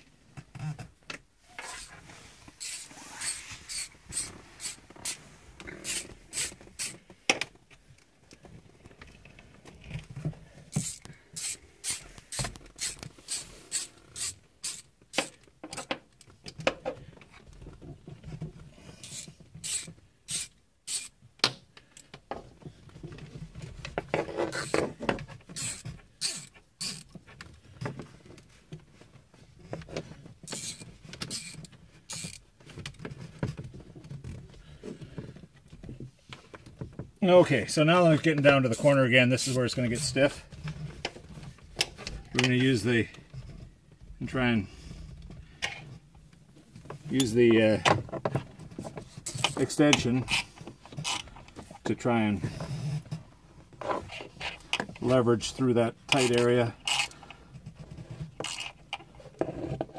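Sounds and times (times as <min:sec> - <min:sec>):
fishing line rasping through adhesive: 0:01.6 - 0:05.2, 0:05.8 - 0:07.0, 0:10.8 - 0:14.9, 0:19.0 - 0:21.2, 0:25.5 - 0:27.1, 0:30.5 - 0:32.4, 0:56.2 - 0:57.2.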